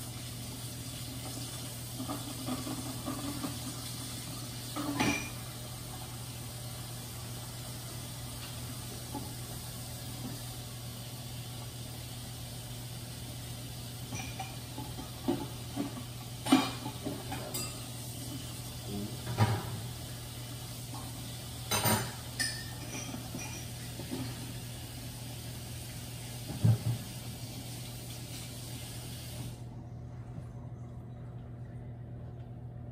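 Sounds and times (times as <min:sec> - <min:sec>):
dishes and utensils clinking: 0:04.7 - 0:05.6, 0:14.0 - 0:18.4, 0:21.6 - 0:24.6
steady low hum: 0:29.6 - 0:32.9.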